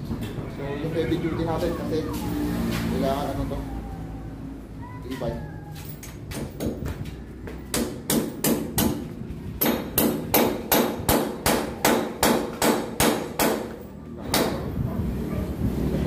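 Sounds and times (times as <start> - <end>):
hammer striking metal on concrete: 7.7 - 14.7.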